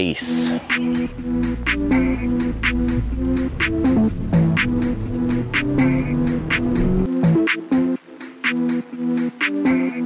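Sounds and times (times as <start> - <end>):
low bass: 0.5 - 7.3
instrumental music with steady beat: 0.5 - 10.0.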